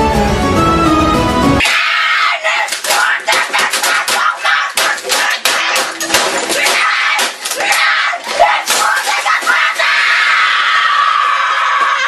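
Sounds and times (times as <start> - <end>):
loud clattering and banging: 2.7 - 7.8
boy screaming: 6.6 - 12.0.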